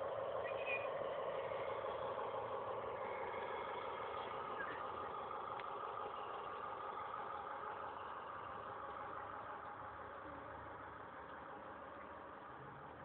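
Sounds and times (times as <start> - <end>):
model train running on track: 0.0 - 13.0.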